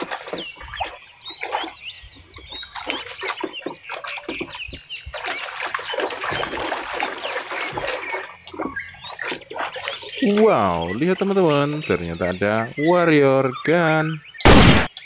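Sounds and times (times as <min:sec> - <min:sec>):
water splashing: 0:00.0 - 0:11.7
birds chirping: 0:00.0 - 0:15.0.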